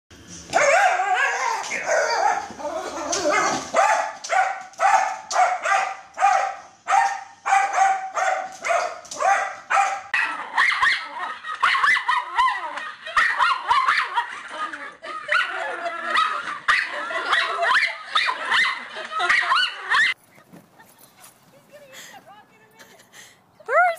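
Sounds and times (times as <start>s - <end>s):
dogs barking: 0.5s - 20.2s
dog yelping and whining: 0.6s - 4.0s.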